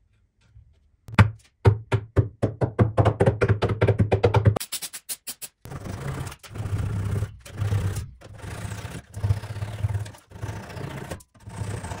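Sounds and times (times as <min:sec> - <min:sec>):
hand saw rasping through wood: 0:05.7 - 0:12.0.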